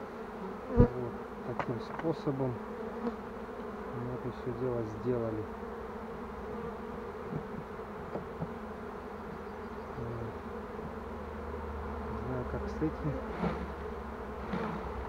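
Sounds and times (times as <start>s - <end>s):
honeybees buzzing: 0.0s - 15.0s
light knocks on hive: 1.5s - 2.2s, 7.3s - 8.6s.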